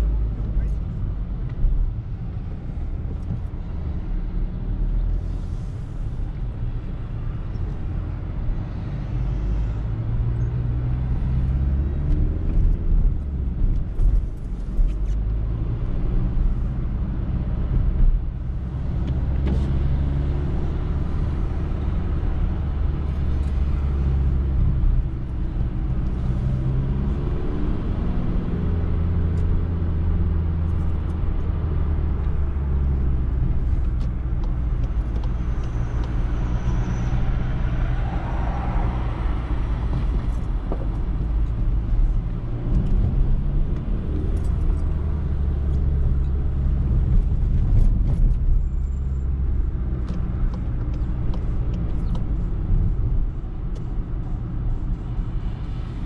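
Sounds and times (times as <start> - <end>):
car engine and tyre drone: 0.0 - 56.0.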